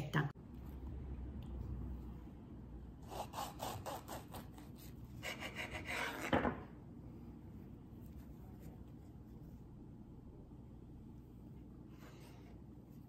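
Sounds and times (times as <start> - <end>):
knife sawing through muffin: 3.0 - 6.3.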